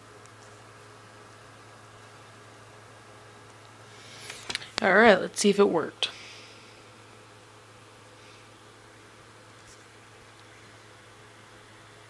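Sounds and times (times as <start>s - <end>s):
low electrical hum: 0.0s - 12.0s
steady hiss: 3.4s - 12.0s.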